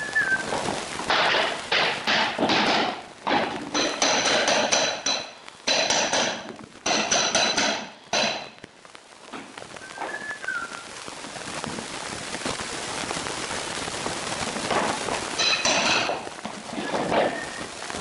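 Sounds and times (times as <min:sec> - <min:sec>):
steady hiss: 0:00.0 - 0:18.0
hammer striking metal bar: 0:03.8 - 0:08.5.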